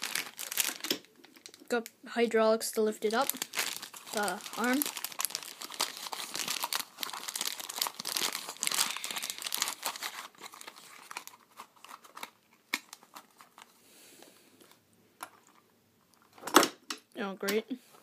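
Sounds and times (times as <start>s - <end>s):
plastic wrapper crinkling: 0.0s - 1.9s, 2.6s - 13.7s.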